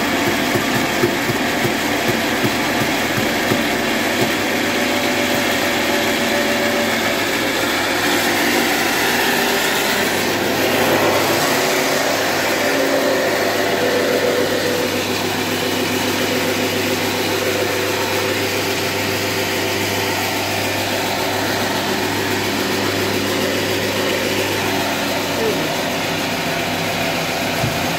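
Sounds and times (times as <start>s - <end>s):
band sawmill humming and whining: 0.0s - 27.9s.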